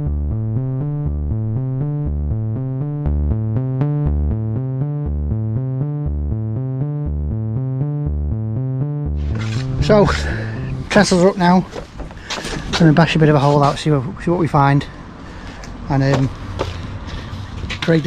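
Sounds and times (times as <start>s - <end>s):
electronic music: 0.0s - 11.6s.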